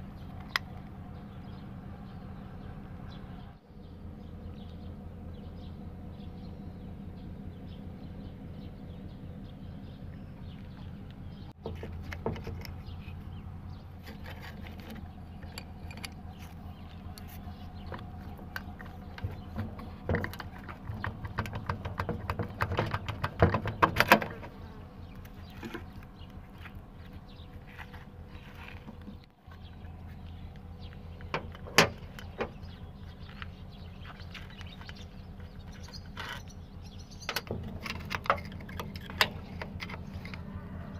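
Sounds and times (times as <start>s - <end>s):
low hum: 0.0s - 40.9s
metal parts clicking and rattling: 14.0s - 24.5s, 37.2s - 40.4s.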